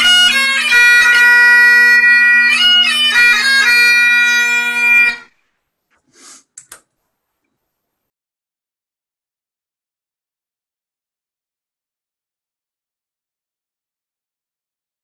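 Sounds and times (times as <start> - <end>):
bagpipe playing: 0.0 - 5.3.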